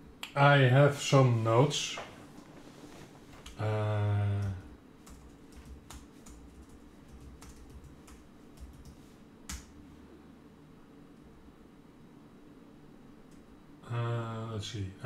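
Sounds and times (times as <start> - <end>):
man humming: 3.6 - 4.7
computer keyboard keystrokes: 4.4 - 9.7.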